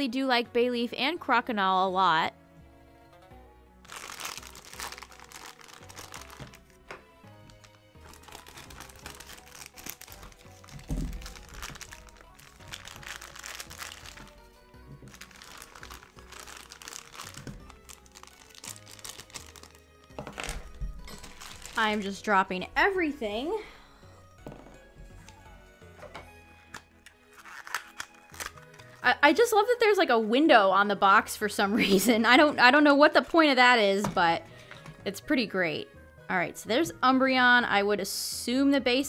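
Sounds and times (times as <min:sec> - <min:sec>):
background music: 0:00.0 - 0:39.0
plastic bag crinkling: 0:03.9 - 0:06.8, 0:07.5 - 0:22.3.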